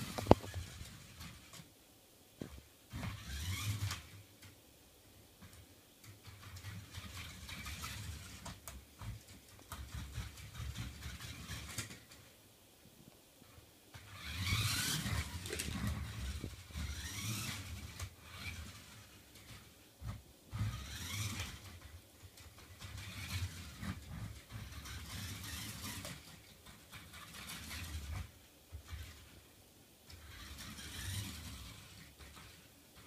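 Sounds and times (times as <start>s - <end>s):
toy car electric motors whining: 0.0s - 1.6s, 2.9s - 4.2s, 5.4s - 12.3s, 13.9s - 29.5s, 30.1s - 33.0s.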